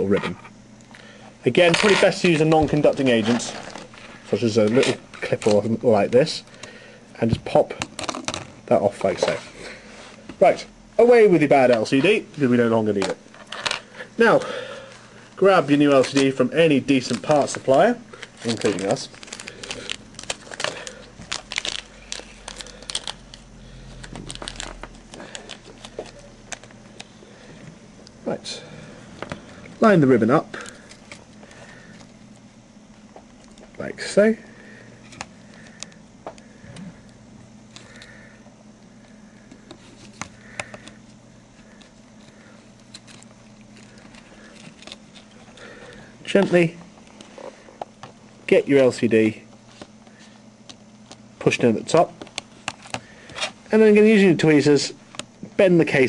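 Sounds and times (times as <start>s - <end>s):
steady low hum: 0.0s - 56.0s
plastic packaging crinkling: 1.5s - 5.8s, 15.4s - 27.1s, 41.6s - 47.8s.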